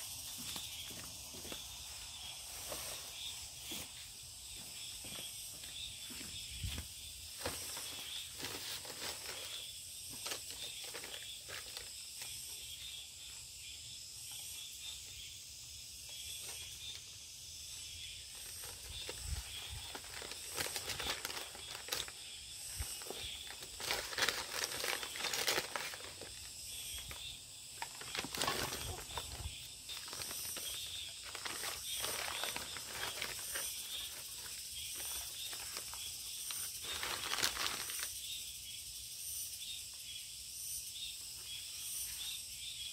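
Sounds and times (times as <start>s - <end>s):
insects chirring: 0.0s - 42.9s
paper sacks rustling: 7.3s - 12.0s, 18.3s - 27.2s, 27.8s - 38.1s.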